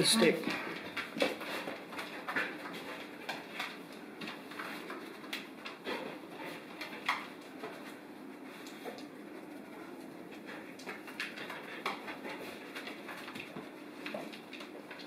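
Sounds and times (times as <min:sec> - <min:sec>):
paws tapping on wooden floor: 0:10.3 - 0:15.0.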